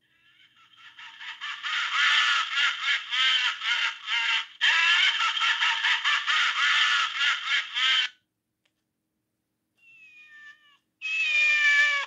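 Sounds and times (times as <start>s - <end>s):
phone ringtone of laughter: 0.4s - 8.1s.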